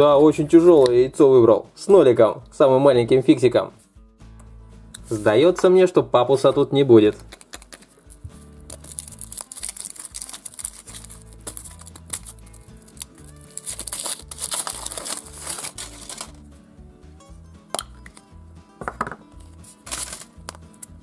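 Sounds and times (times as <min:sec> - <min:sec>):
background music: 0:00.0 - 0:21.0
chocolate shell cracking: 0:07.3 - 0:16.4, 0:19.0 - 0:21.0
foil wrapper crinkling: 0:07.3 - 0:16.4, 0:19.4 - 0:20.6.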